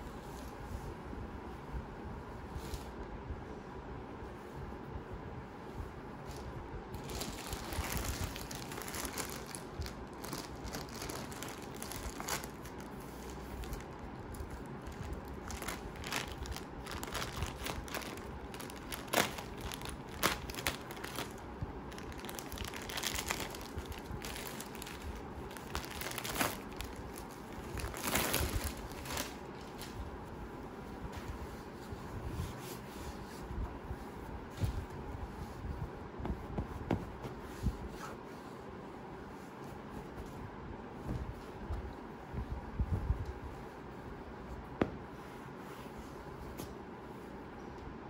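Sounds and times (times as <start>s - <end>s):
packaging crinkling: 7.0s - 29.9s.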